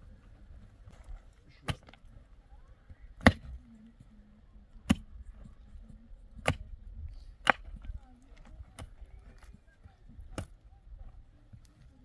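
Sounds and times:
pickaxe striking dry earth: 1.6 - 2.0, 3.1 - 3.6, 6.4 - 6.7, 7.3 - 9.4, 10.2 - 10.6.

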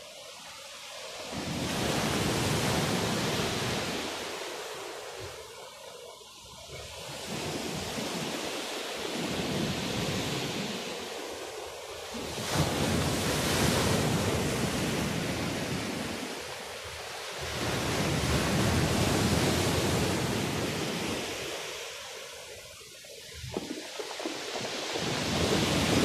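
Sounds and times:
waves breaking on pebble beach: 6.8 - 22.4, 23.2 - 26.0.

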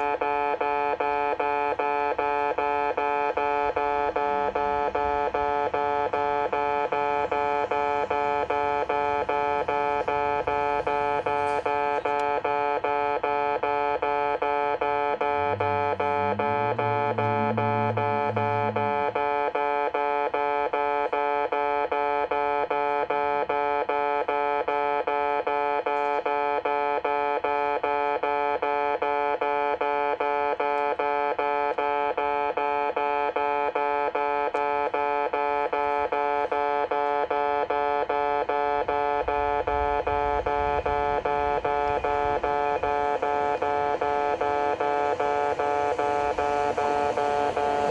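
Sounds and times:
low hum: 2.0 - 20.1, 36.2 - 47.9
level crossing alarm chime: 2.4 - 21.0, 34.8 - 47.9
low rumble: 39.3 - 47.9.

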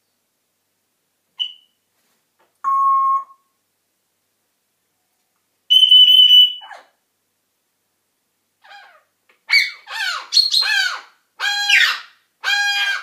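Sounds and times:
parrot whistling: 1.4 - 1.7, 5.7 - 6.8.

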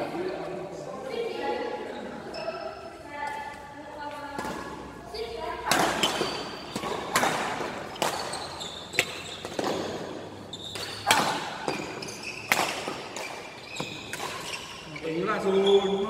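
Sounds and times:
court shoes squeaking: 1.8 - 3.6, 4.2 - 16.0
racket hitting shuttlecock: 4.3 - 14.8.

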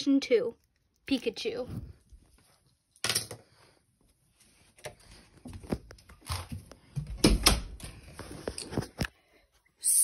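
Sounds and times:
taps and rubbing on microphone: 8.0 - 9.2.

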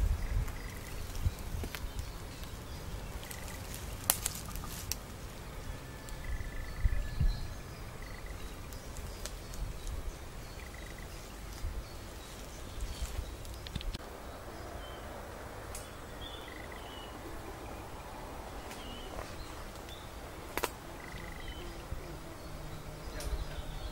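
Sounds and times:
low rumble on microphone: 0.0 - 23.9
sharp clicks: 13.4 - 14.0.

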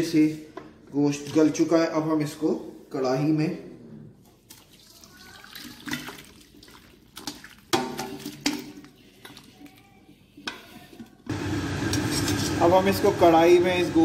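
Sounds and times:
broth pouring and splashing: 4.5 - 9.8.

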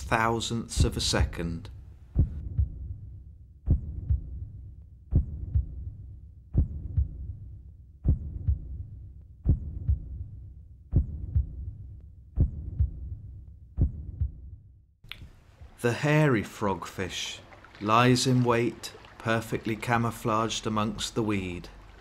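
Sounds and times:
heartbeat double thump: 2.1 - 14.7.

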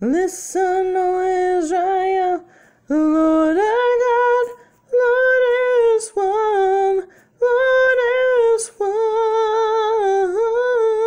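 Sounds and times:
woman singing unaccompanied: 0.0 - 11.0
quick breaths: 2.4 - 2.9, 7.0 - 7.4.

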